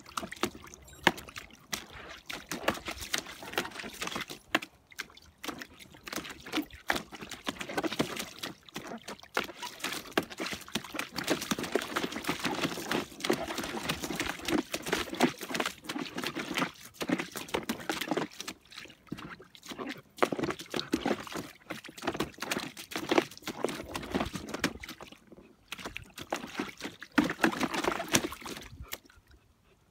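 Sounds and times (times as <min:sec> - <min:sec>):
puppy splashing in shallow water: 0:00.0 - 0:29.9.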